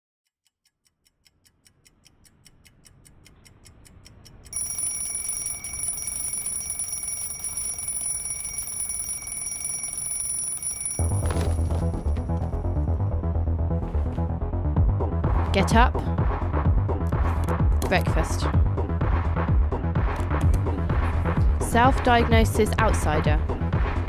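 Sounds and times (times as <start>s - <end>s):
alarm clock ticking: 0.4s - 11.4s
alarm clock ringing: 4.5s - 12.2s.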